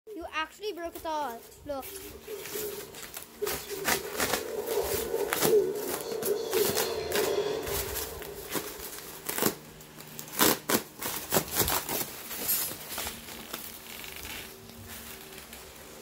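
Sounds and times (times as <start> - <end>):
polystyrene foam crunching and snapping: 8.5 - 16.0.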